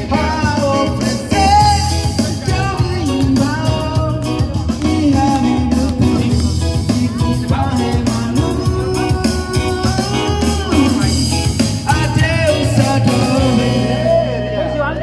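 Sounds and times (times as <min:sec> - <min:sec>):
steady beat: 0:00.0 - 0:14.6
guitar: 0:00.0 - 0:15.0
person singing: 0:00.0 - 0:15.0.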